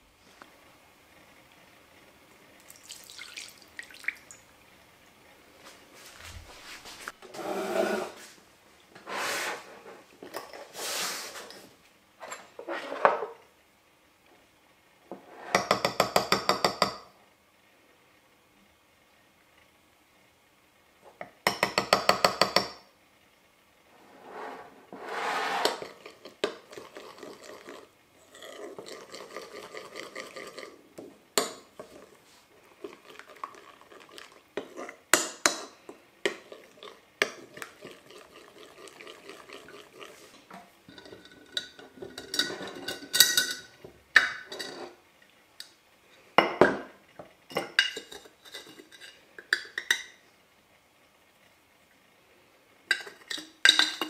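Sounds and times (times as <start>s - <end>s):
dishes and cutlery clinking: 40.9s - 45.0s, 47.5s - 50.2s, 52.9s - 54.0s.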